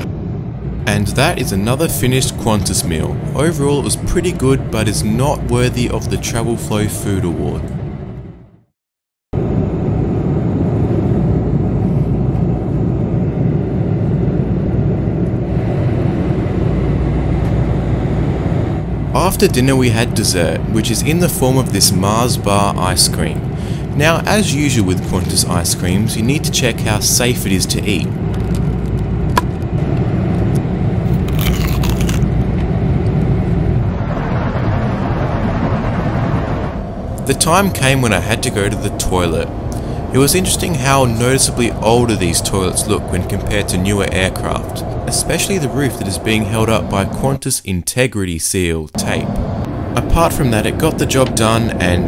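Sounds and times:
airplane cabin noise: 0:00.0 - 0:08.4, 0:09.4 - 0:52.0
crunching bite into ice cream: 0:31.1 - 0:32.4.

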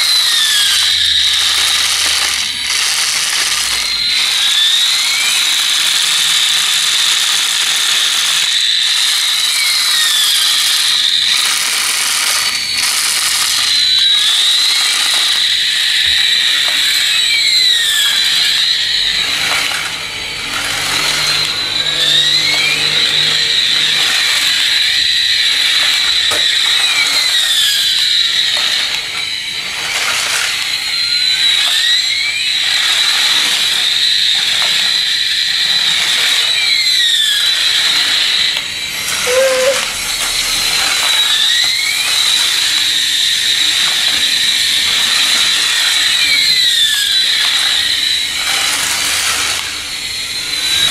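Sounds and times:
toy jet shrill swooping whine: 0:00.0 - 0:50.9
toy motor and gears rattling: 0:00.0 - 0:50.9.

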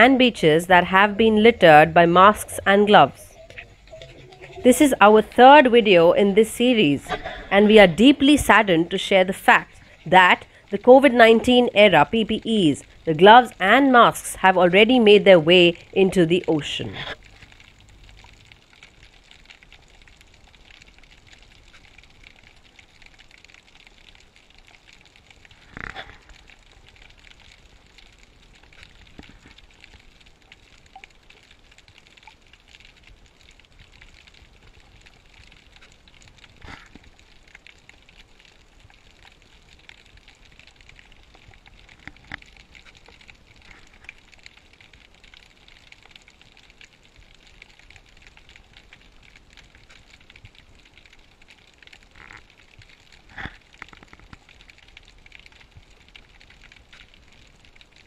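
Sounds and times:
underwater hiss with crackling: 0:17.0 - 0:58.0.

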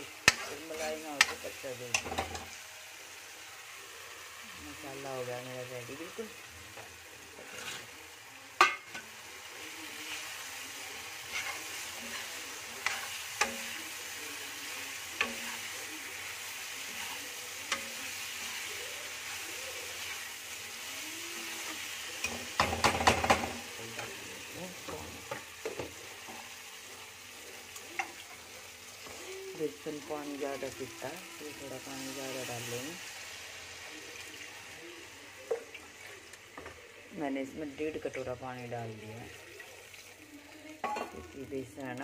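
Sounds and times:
spoon scraping pan: 0:00.0 - 0:02.6, 0:06.7 - 0:33.1
masala sizzling in pan: 0:00.0 - 0:42.0
steel spoon clinking on pan: 0:08.6 - 0:09.1.

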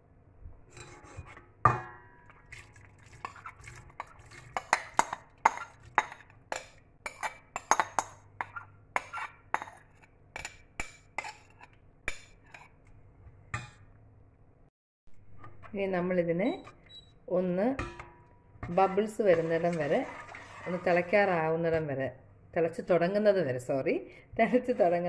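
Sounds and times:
metal spoon scraping and clinking: 0:03.2 - 0:12.8, 0:18.6 - 0:21.2.

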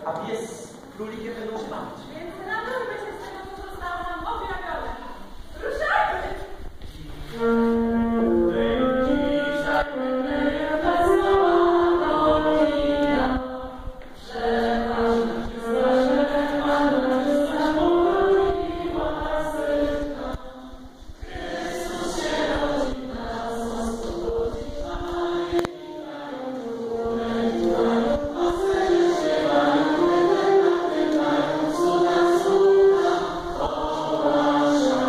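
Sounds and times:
group singing a carol: 0:07.4 - 0:35.0.

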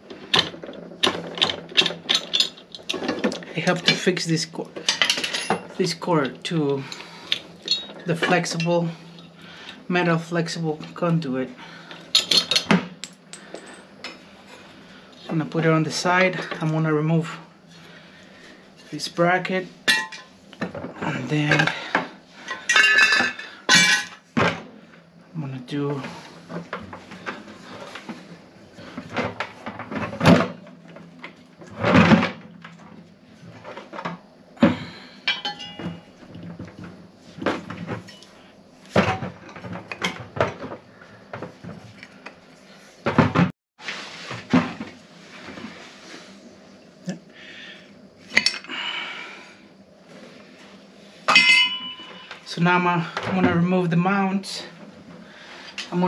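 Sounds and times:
metal parts clanking and scraping: 0:00.1 - 0:09.4, 0:11.8 - 0:14.6, 0:19.9 - 0:24.3, 0:35.3 - 0:40.8, 0:51.3 - 0:52.5.

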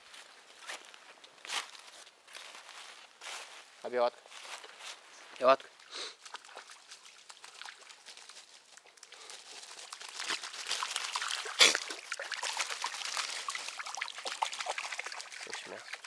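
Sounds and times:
dog paws splashing water: 0:05.4 - 0:16.0
wet leaves rustling: 0:06.2 - 0:16.0.

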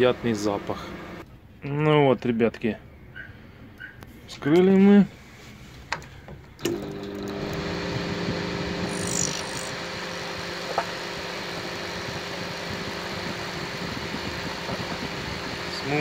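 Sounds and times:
cooling fan running: 0:00.0 - 0:01.2, 0:06.6 - 0:16.0
transformer mains hum: 0:00.0 - 0:01.2, 0:06.5 - 0:16.0
high squeal: 0:08.9 - 0:09.8.

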